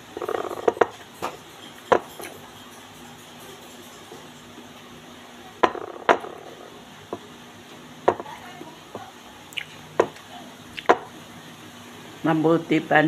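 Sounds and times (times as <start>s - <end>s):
eating by hand: 9.0s - 11.0s.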